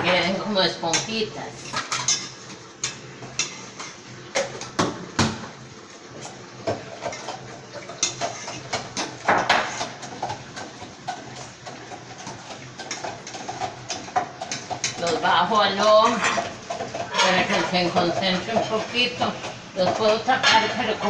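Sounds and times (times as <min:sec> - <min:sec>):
syrup boiling: 0:00.9 - 0:21.0
metal utensil clinking on pot: 0:19.8 - 0:21.0.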